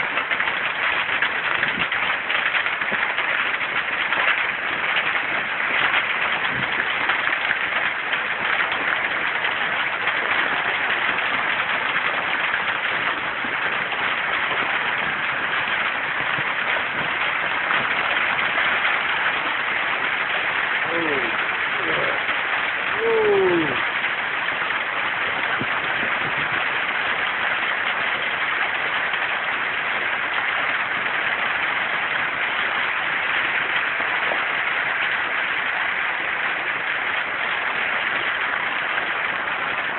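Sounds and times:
heavy rain: 0.0 - 39.9
strong wind through trees: 9.3 - 35.0.

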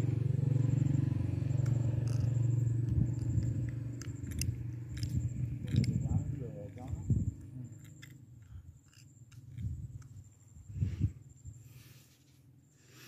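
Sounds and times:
low engine hum: 0.0 - 12.0
metallic clicks and scrapes of wire: 3.1 - 10.3.

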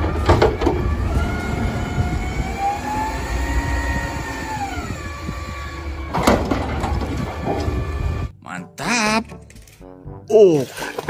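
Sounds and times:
hydraulic whine: 0.0 - 8.3
truck engine revving: 0.0 - 8.3.

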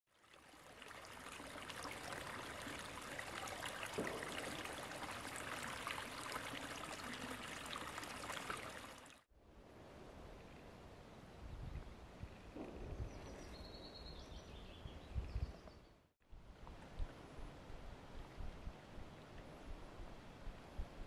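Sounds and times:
forest brook trickling: 0.1 - 9.3
quiet outdoor background: 0.1 - 21.0.

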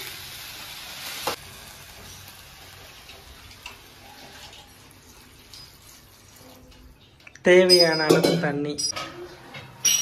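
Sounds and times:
vegetables hissing in a pan: 0.0 - 6.3.

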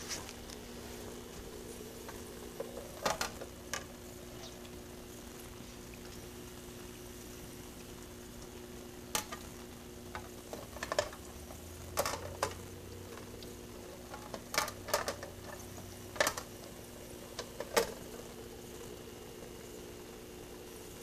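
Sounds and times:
steady low hum: 0.0 - 21.0
clicks and taps on aquarium tank: 9.2 - 9.5.

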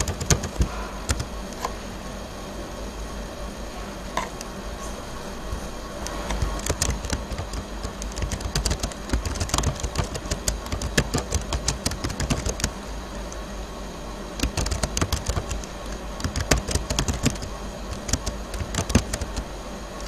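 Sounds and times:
keyboard typing clicks: 0.0 - 1.7, 6.0 - 13.4, 14.4 - 19.5
low steady hum: 0.0 - 20.0.

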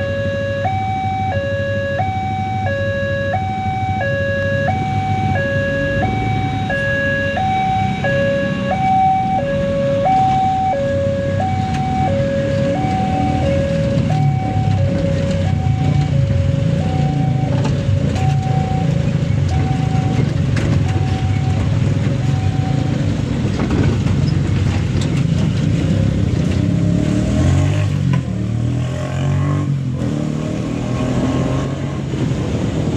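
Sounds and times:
level crossing alarm two-tone: 0.0 - 23.1
vehicle engine running: 0.0 - 27.0
freight train rumbling past: 11.3 - 27.0.

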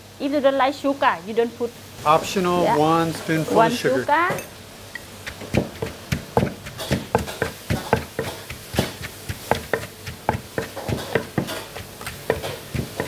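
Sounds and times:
spoon stirring: 5.0 - 13.0
pestle pounding in mortar: 5.2 - 13.0.

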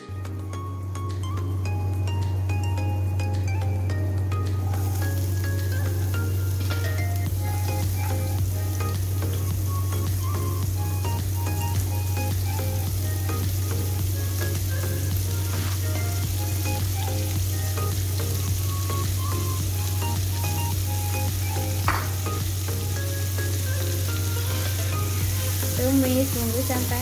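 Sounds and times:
food sizzling in hot oil: 0.3 - 27.0
sharp knock: 21.9 - 22.2.

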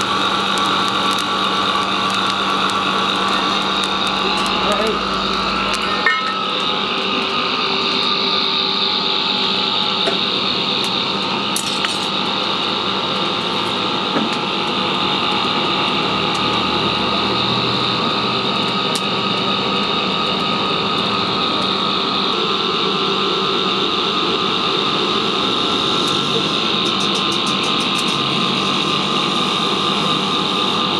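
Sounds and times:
small electric motor humming: 0.0 - 30.9.

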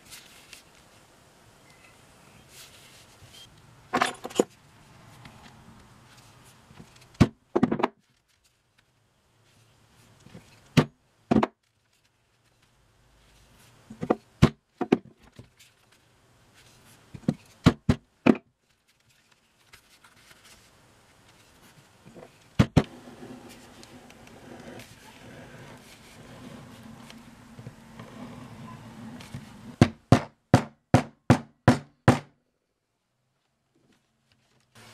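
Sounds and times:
faint scratching: 18.9 - 29.8.

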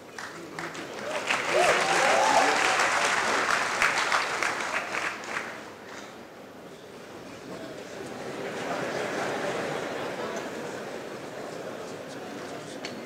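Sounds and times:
audience applauding: 0.1 - 5.7.

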